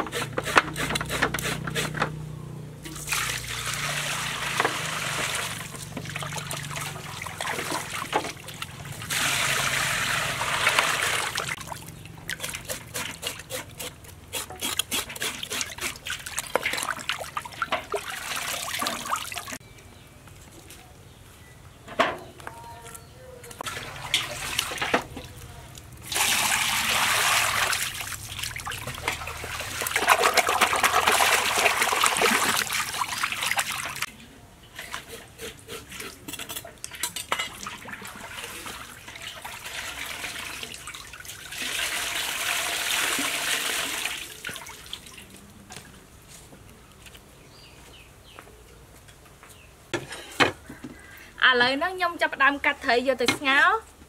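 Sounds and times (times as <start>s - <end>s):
fish being scraped: 0.0s - 2.0s, 12.3s - 16.3s, 34.8s - 36.7s
water splashing in metal basin: 2.8s - 13.2s, 15.4s - 19.6s, 23.6s - 25.4s, 26.0s - 34.1s, 36.8s - 45.3s.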